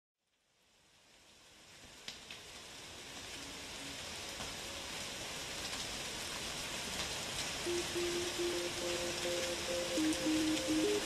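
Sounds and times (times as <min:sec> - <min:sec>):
hiss and crackle noise: 0:00.2 - 0:11.0.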